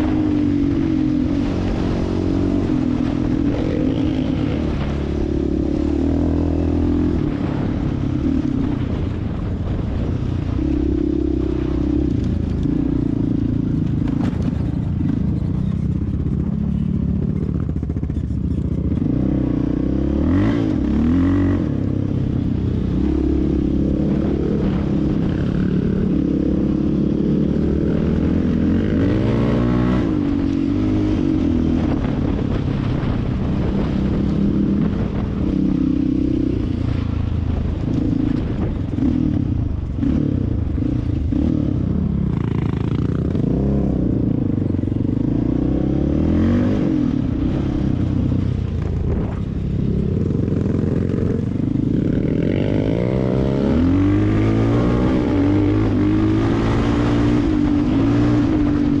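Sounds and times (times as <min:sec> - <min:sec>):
atv engine revving: 0:00.0 - 0:59.0.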